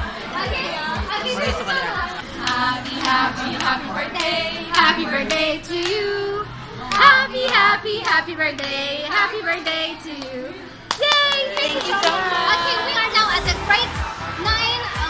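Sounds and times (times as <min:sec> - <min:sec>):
girls singing together: 0:00.0 - 0:15.0
hands clapping in beat: 0:02.4 - 0:04.9, 0:06.9 - 0:08.2, 0:10.9 - 0:12.2.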